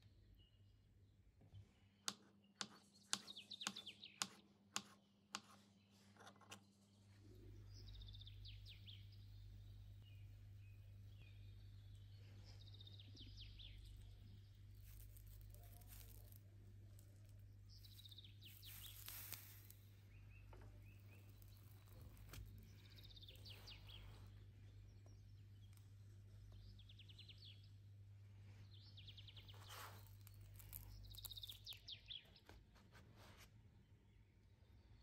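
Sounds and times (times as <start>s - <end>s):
bird chirping trills: 6.6s - 32.5s.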